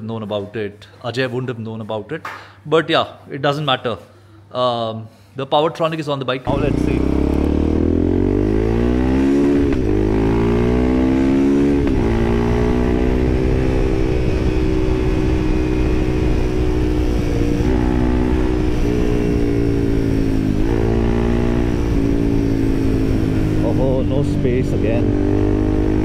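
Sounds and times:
motorcycle engine accelerating: 0:06.5 - 0:26.0.

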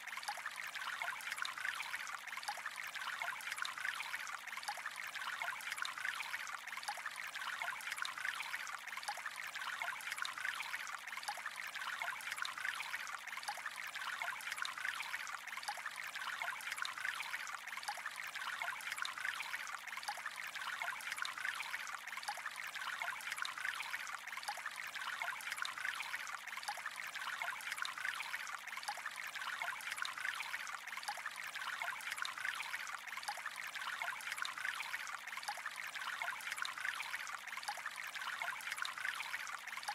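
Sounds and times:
water trickling: 0:00.0 - 0:39.9.

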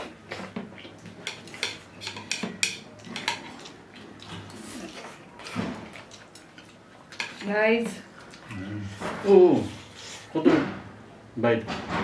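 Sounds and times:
utensils clattering against dishes: 0:01.2 - 0:03.8.

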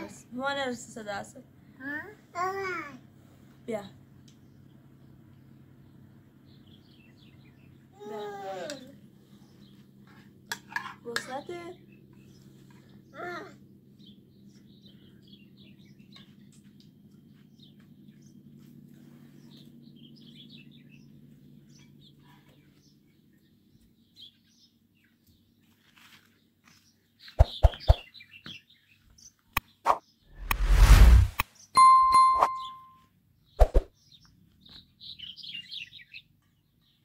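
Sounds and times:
bird chirping: 0:26.8 - 0:30.8, 0:31.5 - 0:37.0.

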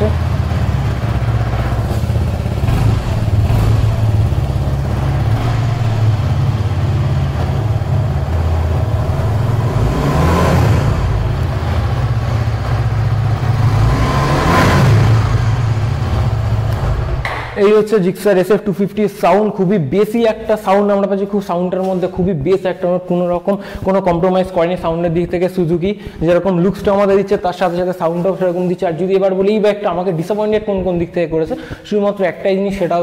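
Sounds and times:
motorcycle engine idling: 0:00.0 - 0:13.9, 0:15.0 - 0:17.5
engine revving: 0:00.0 - 0:17.5.

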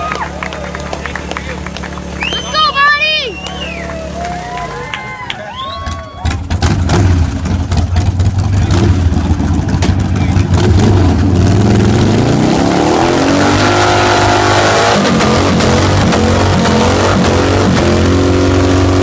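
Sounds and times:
motorcycle engine revving: 0:06.2 - 0:19.0.

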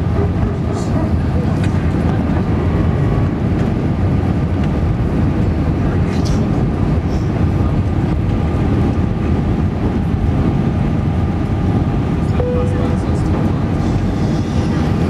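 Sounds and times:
jet engine and airflow rumble: 0:00.0 - 0:15.0
faint steady whine: 0:12.2 - 0:14.4.

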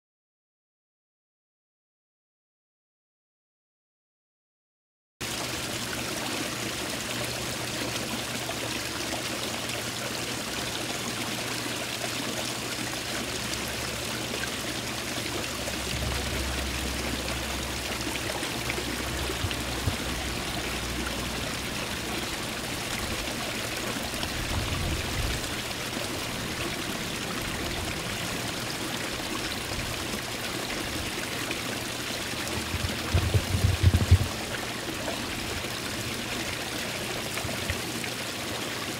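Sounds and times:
small waterfall splashing: 0:05.2 - 0:38.9
low rumbles: 0:15.6 - 0:23.2, 0:32.3 - 0:34.7.

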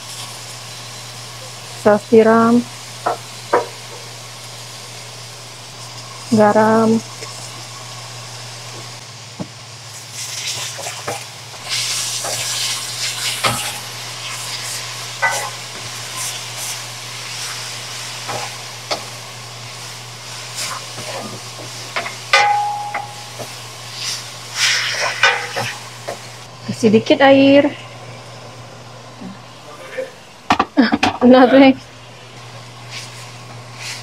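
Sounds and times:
food sizzling: 0:00.0 - 0:34.0
metal spatula scraping wok: 0:22.4 - 0:25.8.

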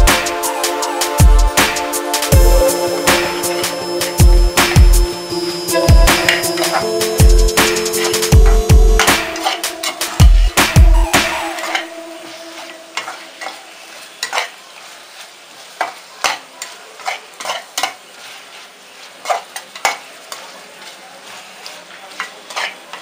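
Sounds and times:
chicken sizzling in a pan: 0:02.2 - 0:10.6, 0:11.2 - 0:23.0
utensil scraping a pan: 0:15.8 - 0:18.6, 0:19.2 - 0:23.0.

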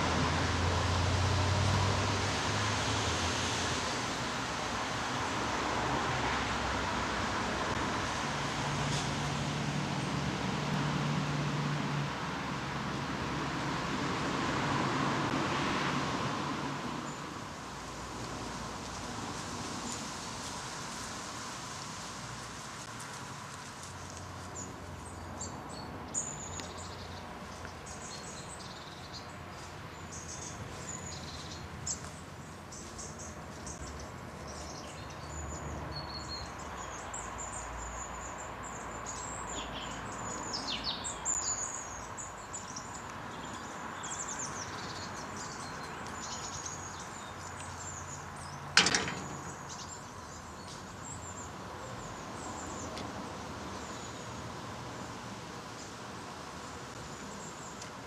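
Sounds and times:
small birds chirping: 0:23.9 - 0:48.7, 0:49.3 - 0:54.6
sharp knock: 0:48.8 - 0:49.6.

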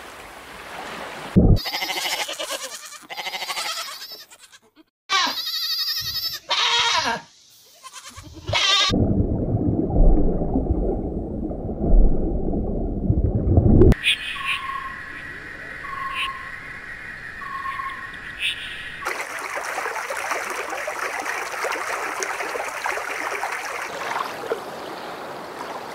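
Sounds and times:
goats bleating: 0:01.6 - 0:09.0
loud low rumbling: 0:09.0 - 0:14.0.

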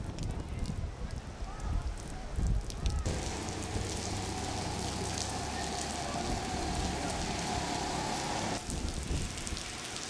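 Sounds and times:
heavy rain falling: 0:02.6 - 0:10.0.

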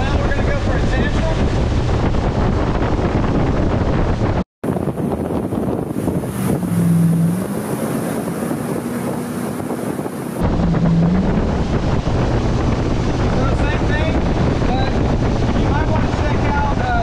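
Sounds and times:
wind buffeting microphone: 0:00.0 - 0:17.0
boat engine droning: 0:04.7 - 0:17.0.

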